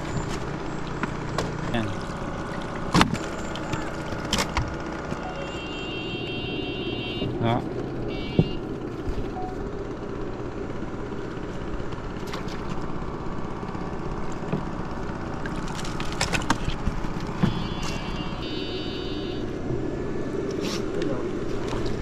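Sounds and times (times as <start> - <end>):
high electronic beeping: 5.2 - 5.7, 9.3 - 9.6.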